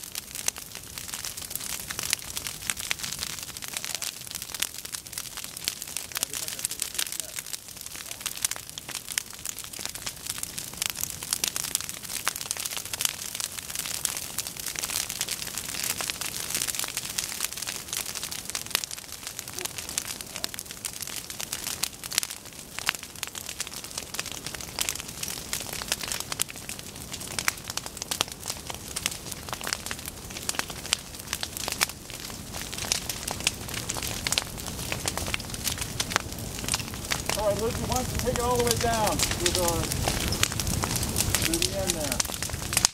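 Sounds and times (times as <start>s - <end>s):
grass fire crackling: 0.0s - 42.9s.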